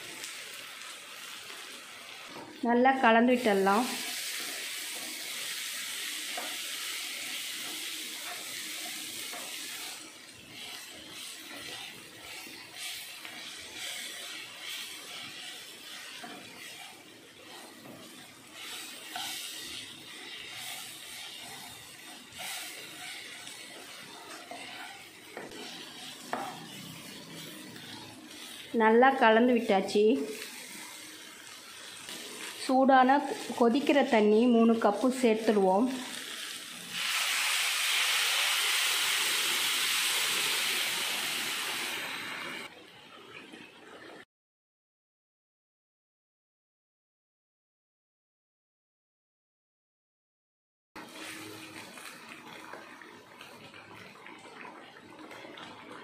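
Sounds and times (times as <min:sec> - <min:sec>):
spatula scraping a pan: 0:03.7 - 0:28.8.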